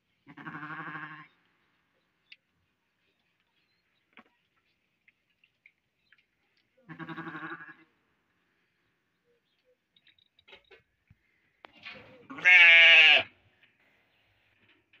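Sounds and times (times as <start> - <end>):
sheep bleating: 0.3 - 1.4, 6.8 - 7.9, 12.3 - 13.3.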